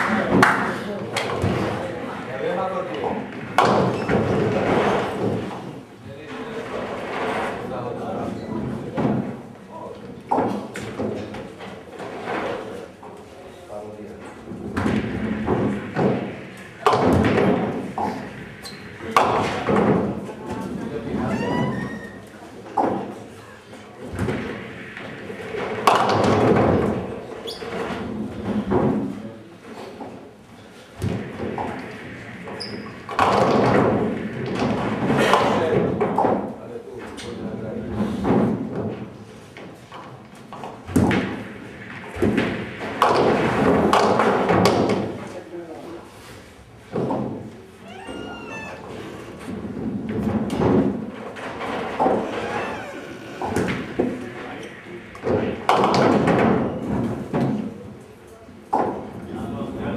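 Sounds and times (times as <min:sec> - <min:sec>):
bowling balls thudding and rolling: 0:02.9 - 0:05.9, 0:14.1 - 0:29.3, 0:29.9 - 0:36.6, 0:37.5 - 0:45.3, 0:46.5 - 0:59.9.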